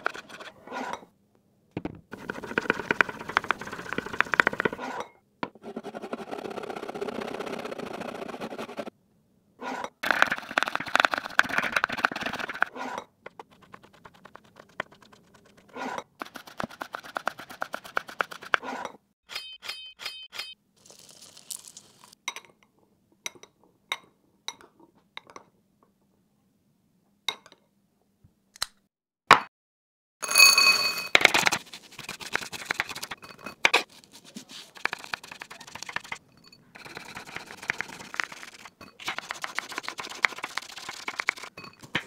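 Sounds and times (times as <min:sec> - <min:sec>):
spoon clinking on glass bowl: 0:30.2 - 0:31.2, 0:33.2 - 0:33.6, 0:36.2 - 0:36.6, 0:41.5 - 0:42.0.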